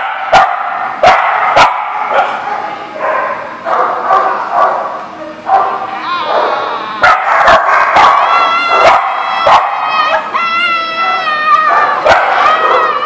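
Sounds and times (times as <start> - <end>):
small dogs barking and yipping: 0.0 - 13.0.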